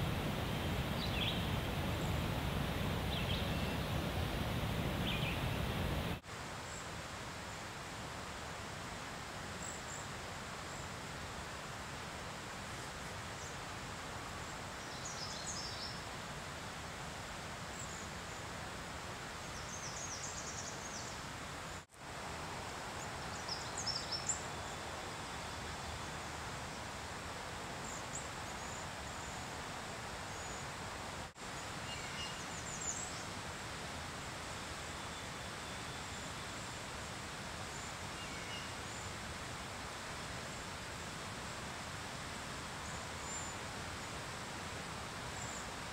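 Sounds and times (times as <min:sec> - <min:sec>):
outdoor background noise: 0:00.0 - 0:45.9.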